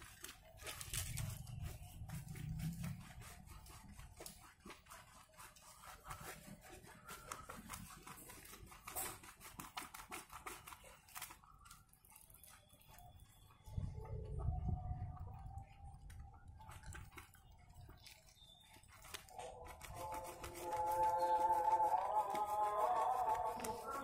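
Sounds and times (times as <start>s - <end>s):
wet fur rubbing and squishing: 0.0s - 14.9s, 15.6s - 24.0s.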